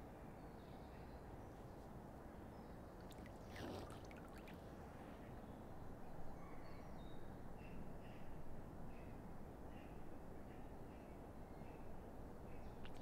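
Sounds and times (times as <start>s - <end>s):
faint outdoor rumble: 0.0s - 13.0s
water splashing and pattering: 3.0s - 4.7s, 12.8s - 13.0s.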